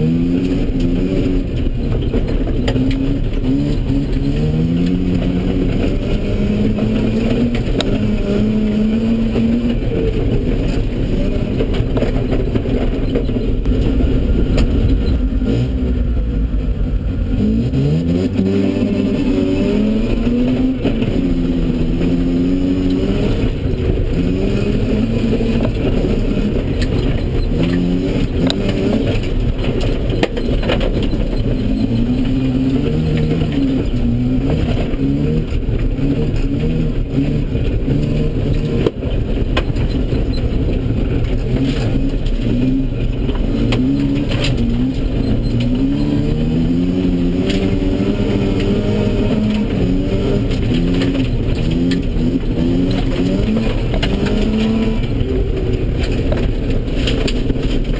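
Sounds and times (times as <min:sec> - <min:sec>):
rotary engine revving: 0:00.0 - 0:57.9
clicks and knocks in car body: 0:09.3 - 0:15.2, 0:25.2 - 0:46.0, 0:49.4 - 0:57.9.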